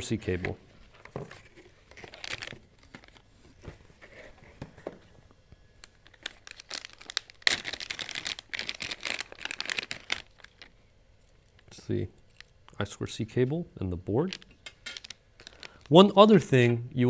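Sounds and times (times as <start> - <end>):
plastic bag crinkling: 1.5 - 3.2, 5.8 - 12.5, 14.3 - 16.0.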